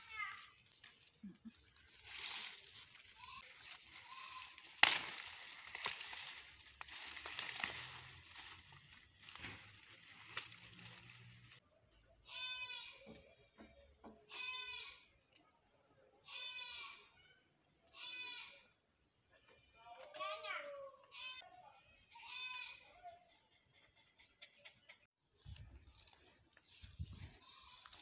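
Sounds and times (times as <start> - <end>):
leafy plants rustling: 0.0 - 11.6, 25.5 - 28.0
goat bleating: 3.0 - 4.7, 14.3 - 15.0, 27.4 - 28.0
sharp crack: 4.4 - 8.0.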